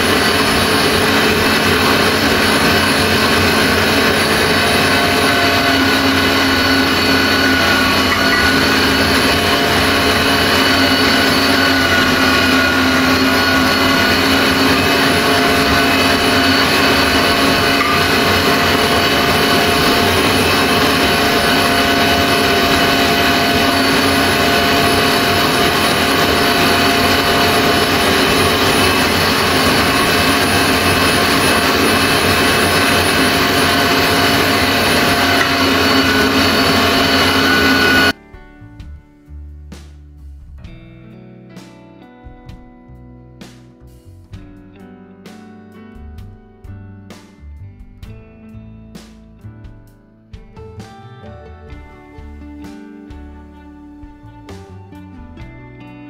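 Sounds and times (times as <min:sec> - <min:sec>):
electric meat grinder motor humming: 0:00.0 - 0:38.2.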